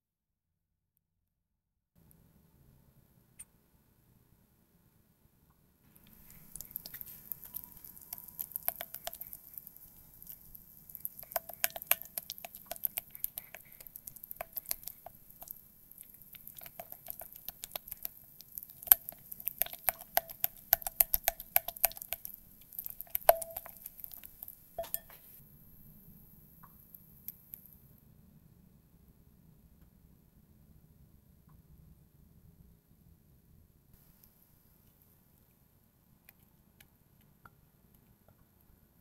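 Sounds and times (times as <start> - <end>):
spatula stirring sticky cream: 6.0 - 25.2
spatula knocking glass bowl: 23.2 - 23.9, 24.8 - 25.2.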